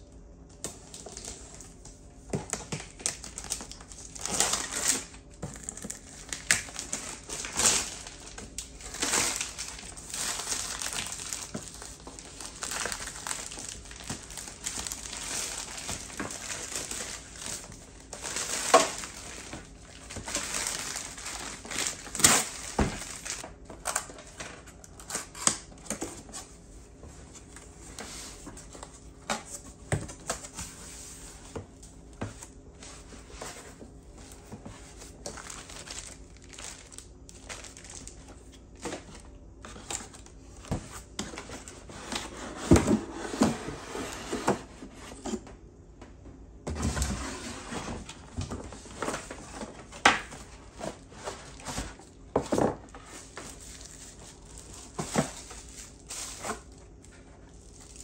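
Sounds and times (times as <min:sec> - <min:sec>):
plastic shrink-wrap crinkling and tearing: 0:02.5 - 0:25.7, 0:35.0 - 0:38.8, 0:53.0 - 0:58.0.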